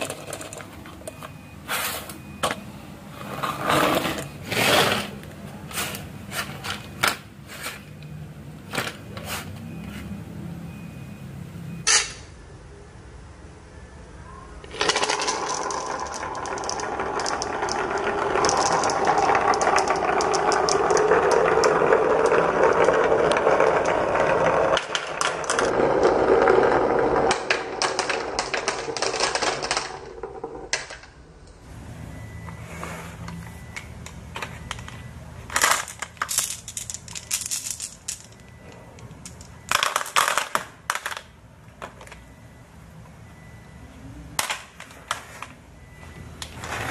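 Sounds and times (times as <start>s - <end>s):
marbles rolling down wooden run: 14.7s - 31.1s, 35.6s - 38.4s.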